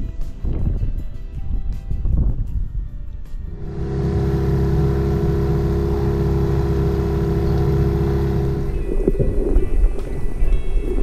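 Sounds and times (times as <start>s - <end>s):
outboard motor running: 3.4s - 9.4s.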